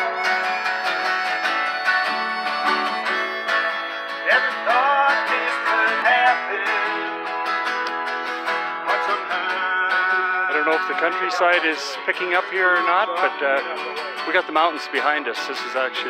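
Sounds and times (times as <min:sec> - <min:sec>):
harmonica wailing notes: 0:00.0 - 0:12.8
acoustic guitars strumming: 0:00.0 - 0:16.0.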